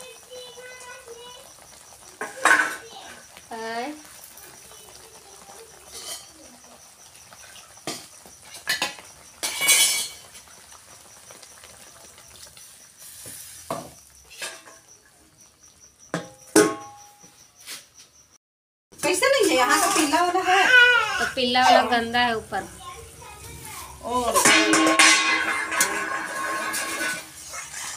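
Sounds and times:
steel plate clinking onto pot: 0:08.6 - 0:10.3, 0:24.3 - 0:27.3
metal spoon scraping steel pot: 0:24.3 - 0:27.9.

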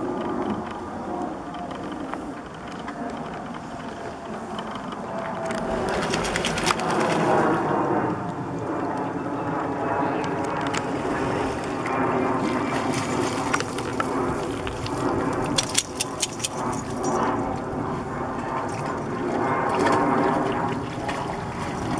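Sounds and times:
outdoor rumble: 0:00.0 - 0:09.2
dog collar tags jingling: 0:15.6 - 0:17.3.

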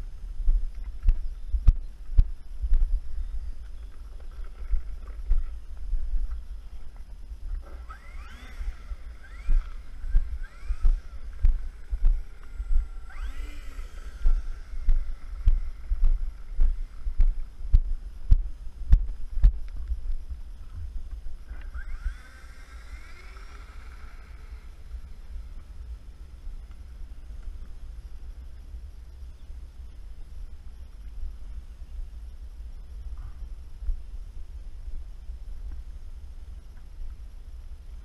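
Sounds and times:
wind rumbling on microphone: 0:00.0 - 0:38.0
electric motors whining: 0:07.4 - 0:17.6, 0:21.4 - 0:27.5
footsteps on concrete: 0:10.8 - 0:12.2, 0:14.2 - 0:21.2.

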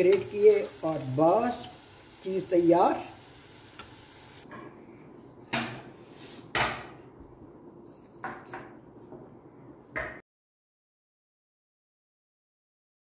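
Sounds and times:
food sizzling in oil in a pan: 0:00.0 - 0:04.4.

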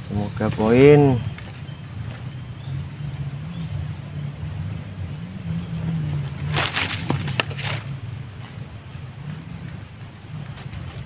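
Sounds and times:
low engine drone: 0:00.0 - 0:11.0
high bird chirps: 0:00.1 - 0:11.0
bird cage rustling and clattering: 0:06.5 - 0:07.9.

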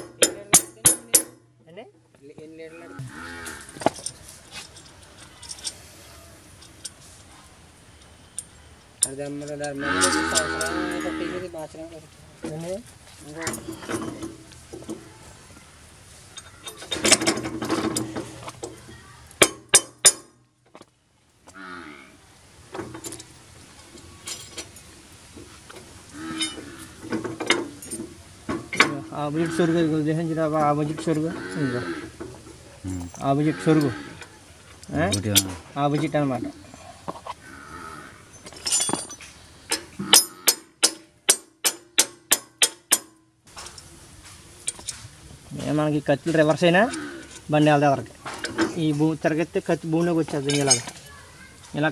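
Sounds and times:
sharp metal clicks: 0:38.5 - 0:43.9.

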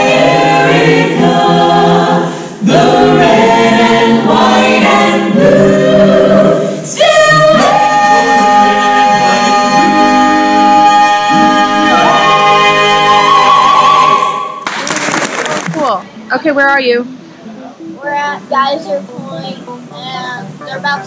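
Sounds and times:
a cappella choir singing: 0:00.0 - 0:14.6.

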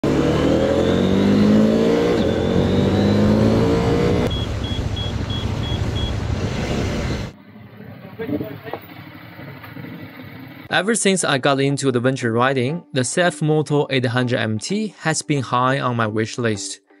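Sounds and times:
motorcycle engine accelerating: 0:00.0 - 0:10.7
wind: 0:00.0 - 0:10.7
short high beeps: 0:02.0 - 0:03.7, 0:04.3 - 0:06.1.

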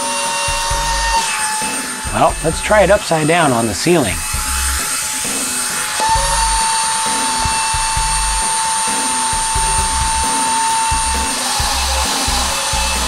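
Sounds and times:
steady whine: 0:00.0 - 0:13.0
suction fan whirring hiss: 0:00.0 - 0:13.0.

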